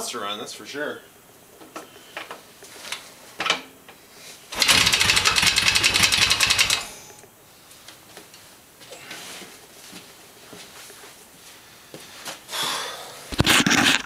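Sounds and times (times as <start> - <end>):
motorcycle engine turning over: 4.5 - 7.0.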